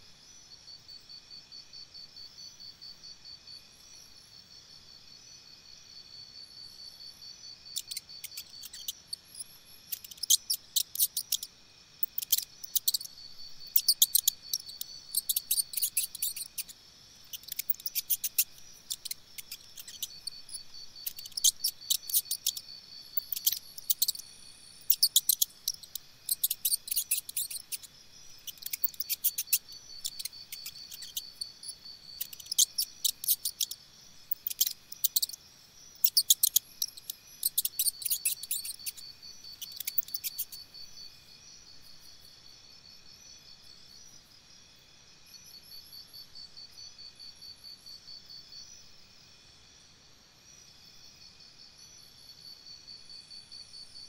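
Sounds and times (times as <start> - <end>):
crickets trilling: 0.0 - 54.0.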